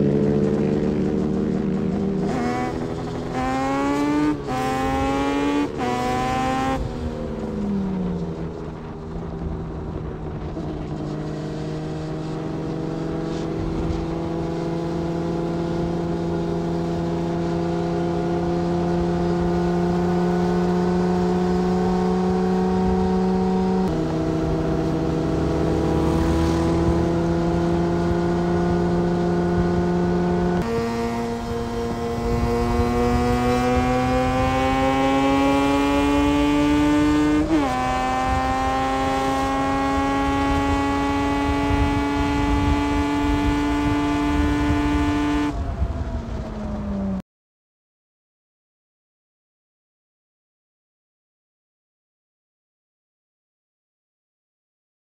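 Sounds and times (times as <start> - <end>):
motorcycle engine accelerating: 0.0 - 47.2.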